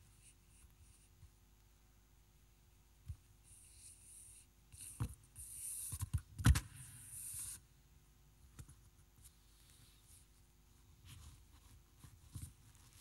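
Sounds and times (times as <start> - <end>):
rustling and handling noises: 8.5 - 13.0.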